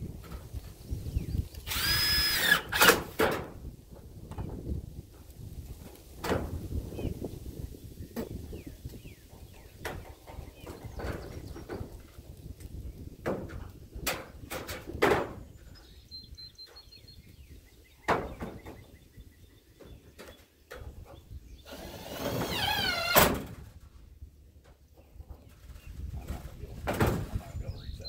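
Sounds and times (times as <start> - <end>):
knocks of roofing materials: 1.8 - 4.5, 6.1 - 6.7, 13.2 - 15.6, 18.1 - 18.9, 26.8 - 27.4.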